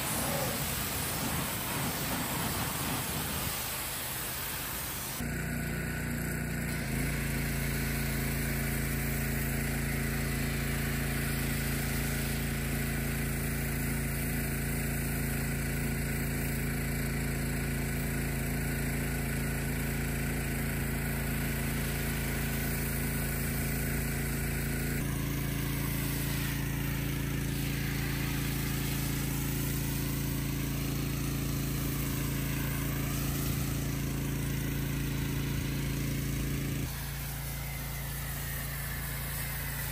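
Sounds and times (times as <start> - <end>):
hissing foam spray: 0.0 - 5.2, 6.6 - 14.4, 21.2 - 39.9
pressure washer running: 0.0 - 39.9.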